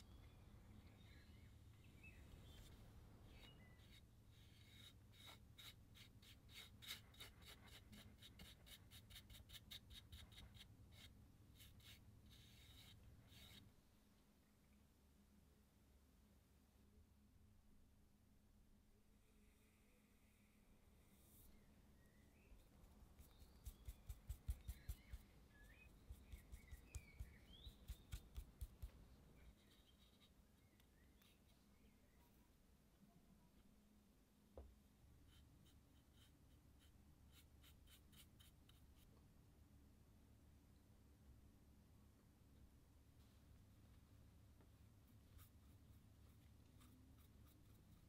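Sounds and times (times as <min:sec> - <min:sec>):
faint bird chirps: 0:00.0 - 0:05.7, 0:19.2 - 0:28.6, 0:29.3 - 0:32.6.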